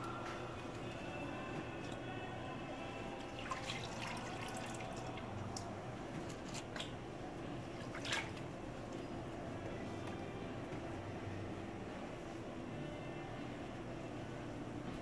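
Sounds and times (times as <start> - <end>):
steady low hum: 0.0 - 15.0
liquid dripping: 3.2 - 5.8.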